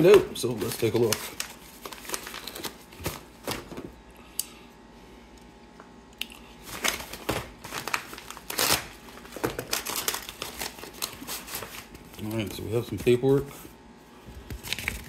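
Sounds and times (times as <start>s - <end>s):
paper envelope rustling and crinkling: 0.0s - 3.9s, 6.6s - 13.7s, 14.4s - 15.0s
envelope tearing open with knife: 6.7s - 11.9s.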